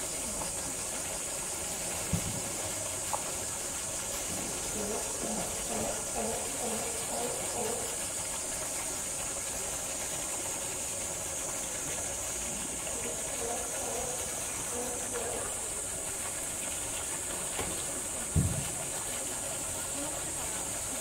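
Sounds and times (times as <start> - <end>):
steady high-pitched hiss: 0.0 - 21.0
faint voices: 4.3 - 8.2, 12.4 - 15.9.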